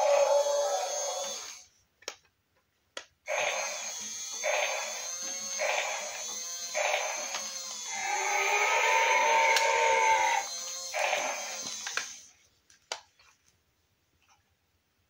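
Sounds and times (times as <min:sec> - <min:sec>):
toy electronic sound effects: 0:00.0 - 0:01.6, 0:03.3 - 0:12.2
high whine of toy motor: 0:00.0 - 0:01.7, 0:03.3 - 0:12.3.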